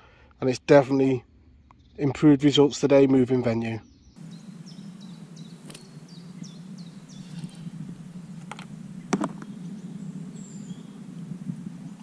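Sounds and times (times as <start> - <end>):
small birds chirping: 3.7 - 12.0
steady low hum: 4.2 - 12.0.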